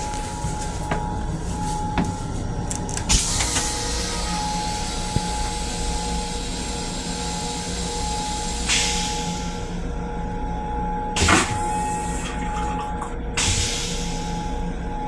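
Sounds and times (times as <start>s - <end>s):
train running rumble: 0.0s - 8.5s
toilet flush hissing rush: 11.2s - 14.0s.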